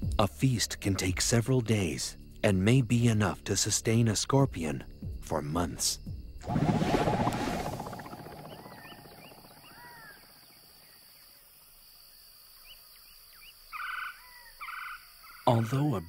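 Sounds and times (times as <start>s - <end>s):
pulsing rumble: 6.4s - 10.6s
thin bird chirps: 6.5s - 11.0s
harsh buzzy bird calls: 6.6s - 11.0s.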